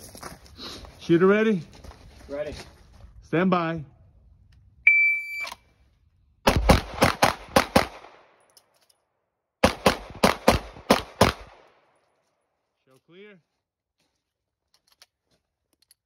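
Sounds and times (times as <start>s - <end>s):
shot timer beep: 4.9s - 5.5s.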